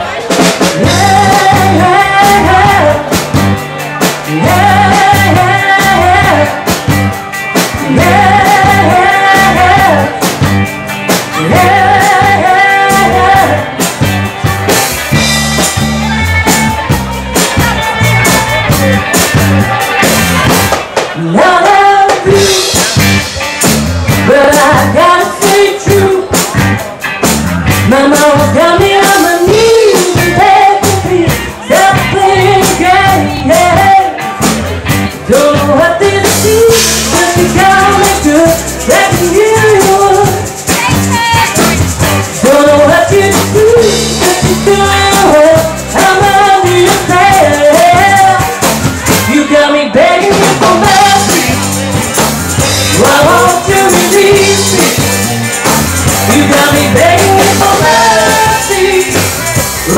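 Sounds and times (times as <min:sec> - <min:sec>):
woman singing: 0:00.0 - 0:20.5, 0:21.2 - 0:23.0, 0:24.1 - 0:26.7, 0:27.7 - 0:51.9, 0:52.6 - 0:55.3, 0:56.2 - 0:59.9
live rock band playing: 0:00.0 - 0:59.9.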